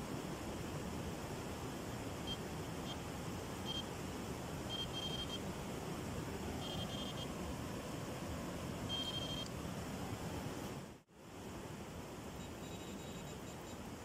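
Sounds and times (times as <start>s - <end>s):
background hiss: 0.0s - 14.0s
electronic bite alarm beeping: 4.7s - 5.4s, 6.6s - 7.3s, 8.9s - 9.5s, 12.4s - 13.6s.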